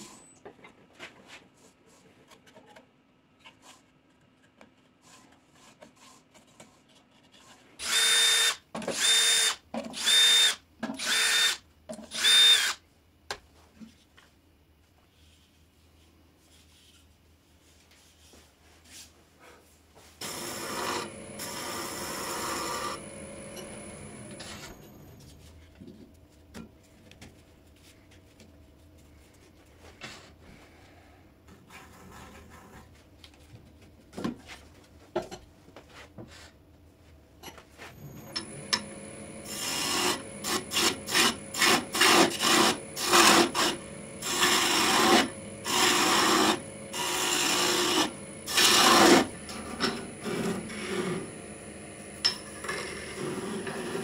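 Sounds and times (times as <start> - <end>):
cordless drill motor whine: 7.8 - 12.8, 20.2 - 24.9, 38.0 - 52.2
power tool running: 7.8 - 12.8, 20.2 - 24.8, 38.1 - 54.0.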